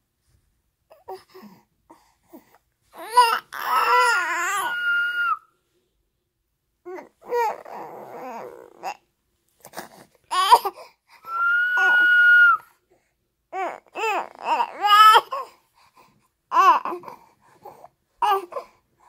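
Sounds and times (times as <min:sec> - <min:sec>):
infant crying: 0:03.0 - 0:05.5, 0:06.9 - 0:09.0, 0:10.3 - 0:12.7, 0:13.5 - 0:15.5.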